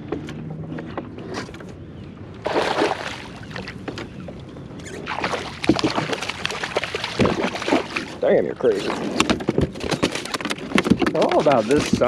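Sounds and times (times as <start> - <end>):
fish thrashing and splashing: 2.4 - 4.2, 4.8 - 12.0.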